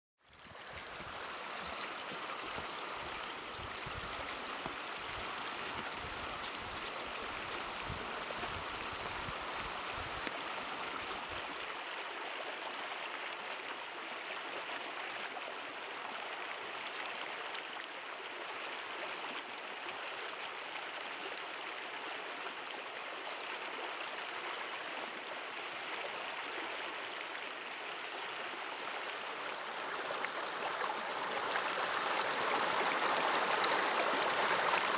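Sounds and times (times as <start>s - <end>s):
stream rushing over stones: 0.4s - 13.9s, 25.4s - 34.9s.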